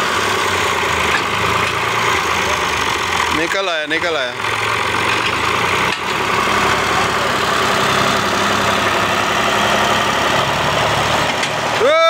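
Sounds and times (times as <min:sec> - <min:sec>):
tractor diesel engine running: 0:00.0 - 0:12.0.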